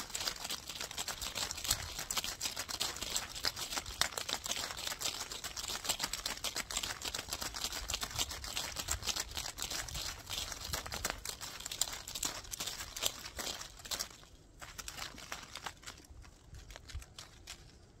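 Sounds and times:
leaves and brush rustling: 8.3s - 18.0s.

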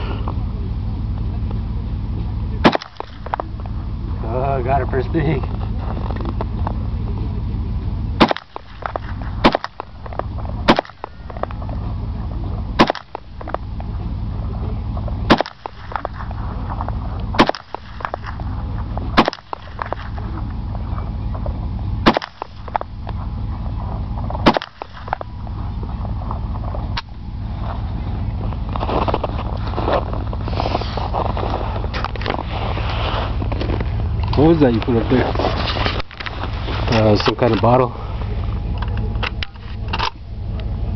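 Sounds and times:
low rumble: 0.0s - 40.9s
rifle shots: 2.6s - 3.4s, 8.2s - 11.6s, 12.8s - 13.6s, 15.3s - 16.4s, 17.3s - 18.5s, 19.1s - 20.2s, 22.0s - 22.9s, 24.4s - 25.3s.

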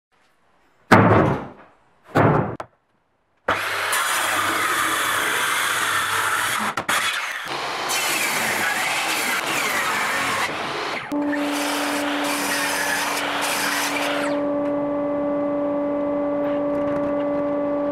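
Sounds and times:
wooden boards knocking on workbench: 0.9s - 2.7s
circular saw cutting wood: 3.5s - 15.1s.

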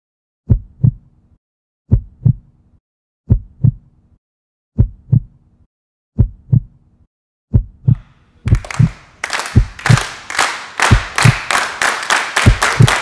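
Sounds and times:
heartbeat double thumps: 0.5s - 1.1s, 1.9s - 2.5s, 3.3s - 3.9s, 4.8s - 5.4s, 6.2s - 6.8s, 7.5s - 8.7s, 9.6s - 9.9s, 12.4s - 12.9s.

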